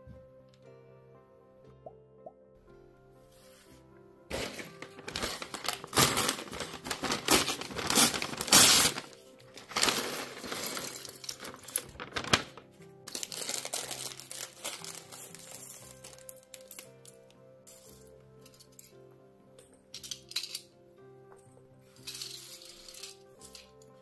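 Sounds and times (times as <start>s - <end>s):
paper bag crinkling and tearing: 4.3s - 16.7s
plastic bricks clattering: 9.6s - 12.2s.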